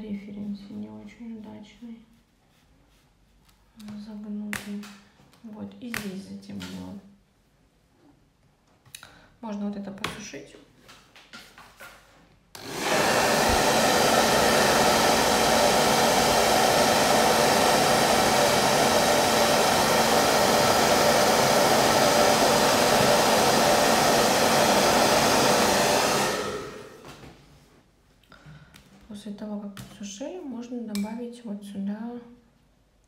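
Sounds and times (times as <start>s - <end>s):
hair dryer blowing: 12.6s - 27.1s.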